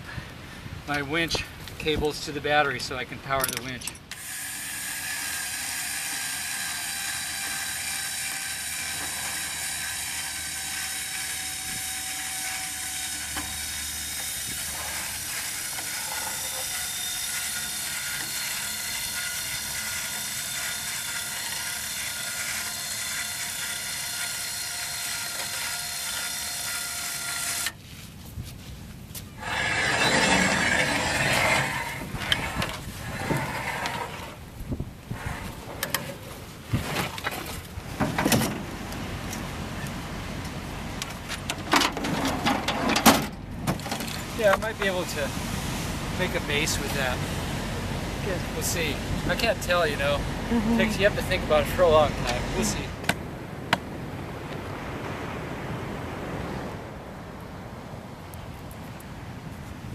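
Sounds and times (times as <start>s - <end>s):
electric winch whining: 4.1s - 27.8s, 29.4s - 34.4s
loud rough noise: 29.4s - 34.4s.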